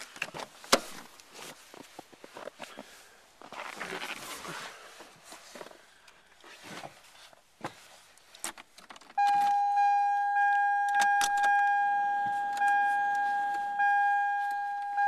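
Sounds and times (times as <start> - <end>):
dashboard warning chime: 9.2 - 15.0
keys rustling and clicking: 10.9 - 13.7.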